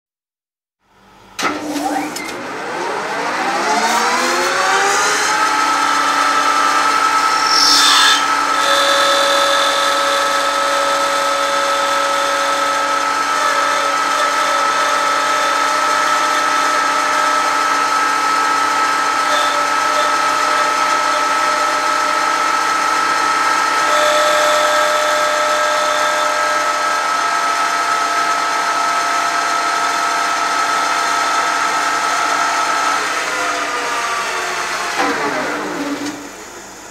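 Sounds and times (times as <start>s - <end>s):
lathe spindle whine: 1.6s - 36.9s
harsh cutting burst: 5.0s - 10.3s
ringing tones from metal cutting: 6.7s - 17.0s, 19.3s - 22.5s, 23.8s - 27.1s.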